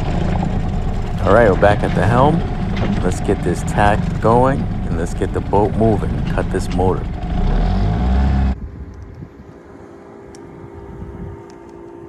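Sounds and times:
water: 0.0 - 7.5
outboard motor running: 0.0 - 8.7
wind: 0.0 - 12.0.

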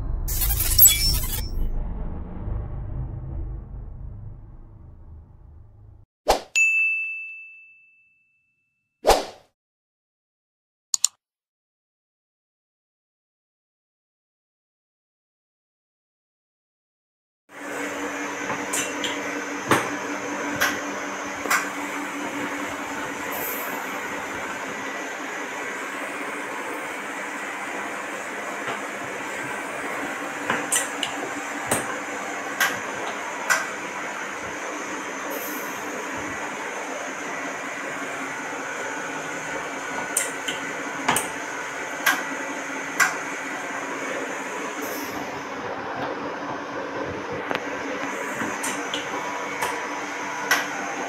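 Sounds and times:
machine humming: 0.0 - 6.0
sharp clicks: 11.0 - 11.2
vacuum pump humming: 17.6 - 51.0.

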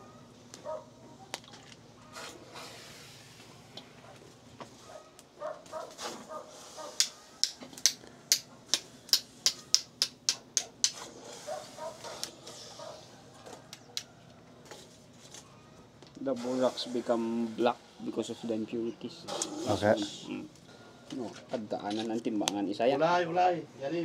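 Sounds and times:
rapid sharp tapping on slag: 7.0 - 11.0.

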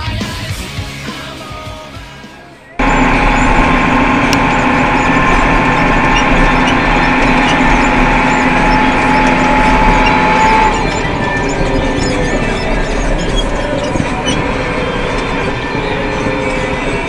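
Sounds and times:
music: 0.0 - 2.8
tractor diesel engine running: 2.8 - 17.0.

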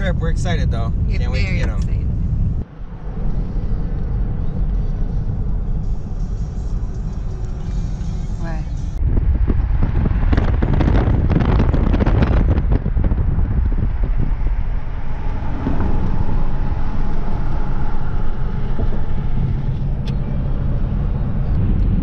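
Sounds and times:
car engine and tyres rumbling: 0.0 - 22.0
wind buffeting microphone: 8.4 - 22.0.

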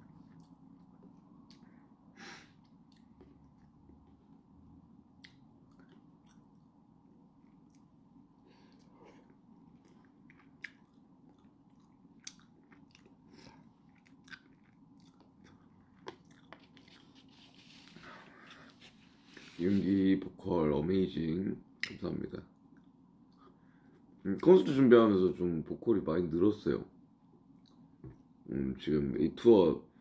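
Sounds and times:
low room hum: 0.0 - 30.0
chewing food: 0.1 - 1.7, 2.6 - 4.3, 5.2 - 6.7, 7.4 - 8.0, 8.7 - 19.0.

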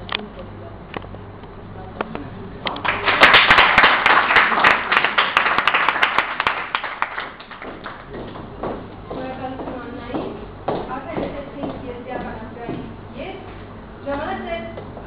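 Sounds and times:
audience clapping: 2.7 - 8.4.

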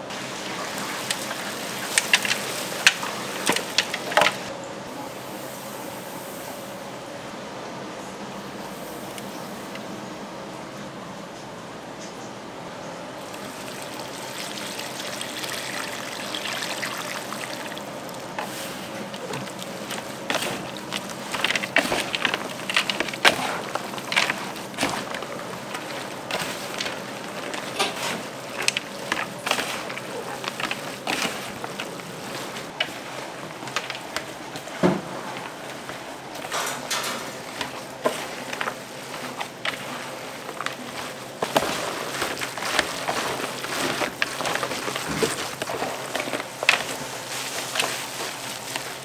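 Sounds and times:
steady background hiss: 0.0 - 49.0
wet water sounds: 13.2 - 33.2.

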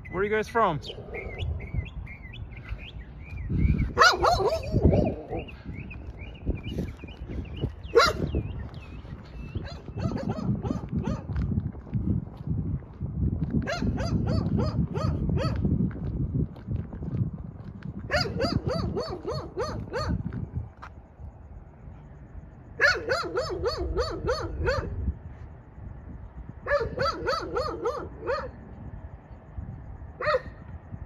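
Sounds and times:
dog barking: 3.9 - 5.5, 7.9 - 8.3, 9.6 - 11.3, 13.7 - 15.6, 18.1 - 20.2, 22.8 - 25.0, 26.6 - 28.6, 30.2 - 30.6.

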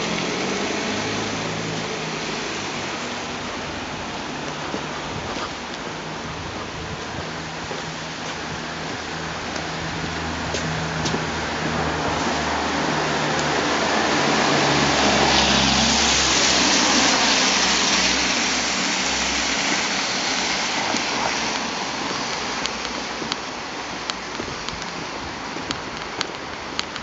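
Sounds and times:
vehicle passing: 0.0 - 24.0.

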